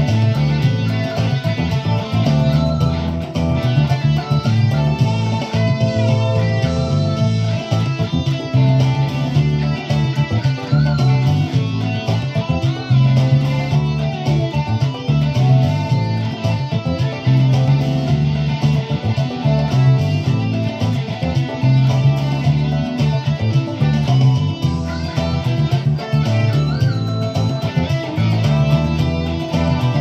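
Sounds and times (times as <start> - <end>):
electric guitar boogie: 0.0 - 30.0.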